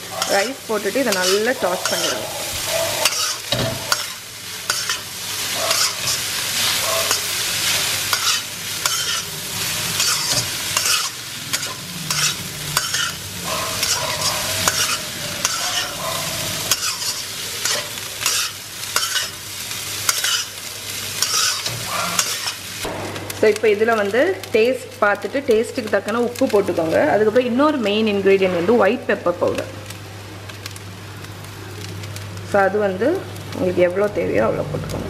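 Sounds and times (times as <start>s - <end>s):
metal spatula scraping a wok: 0.0s - 19.4s, 20.0s - 22.7s
rice sizzling: 0.0s - 35.0s.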